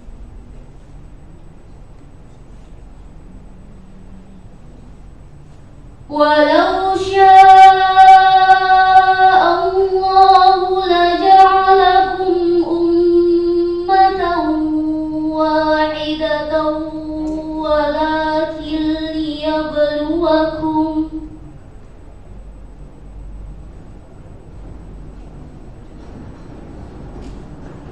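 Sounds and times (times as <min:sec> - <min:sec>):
girl chanting into a microphone: 0:06.1 - 0:21.4.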